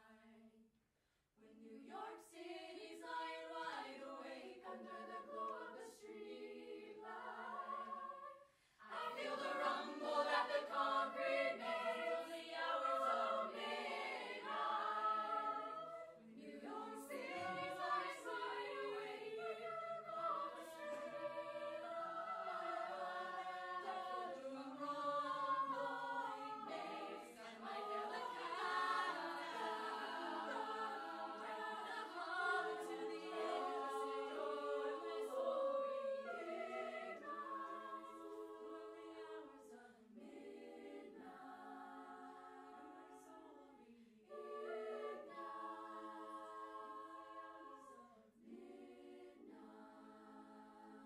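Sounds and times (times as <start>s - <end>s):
a cappella group singing in harmony: 0.0s - 0.6s, 1.4s - 51.0s.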